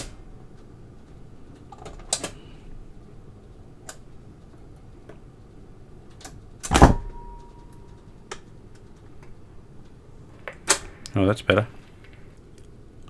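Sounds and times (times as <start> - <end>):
record changer mechanical clicks: 0.0 - 2.6, 3.5 - 11.2
stylus dropping thump: 6.7 - 7.5.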